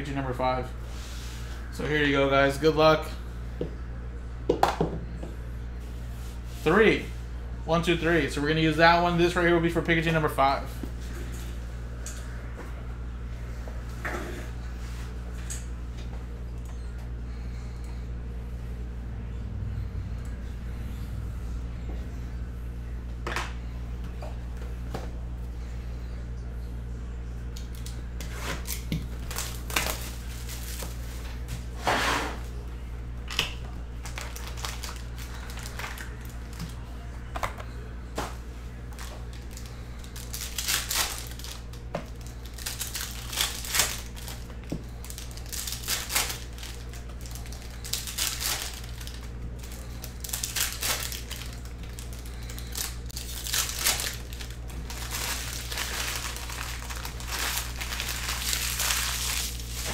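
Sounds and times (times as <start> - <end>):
steady low hum: 0.0 - 59.9
wrappers torn and crinkled: 27.6 - 31.2, 34.0 - 36.9, 38.9 - 59.9.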